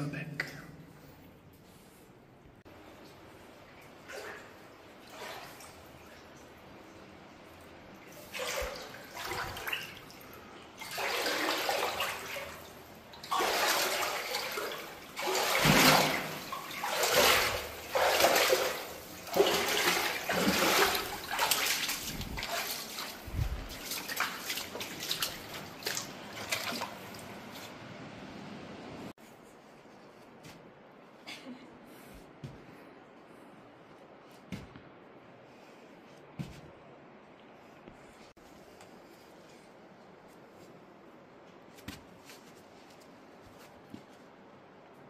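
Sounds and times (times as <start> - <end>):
shallow water splashing and sloshing: 1.0 - 28.0.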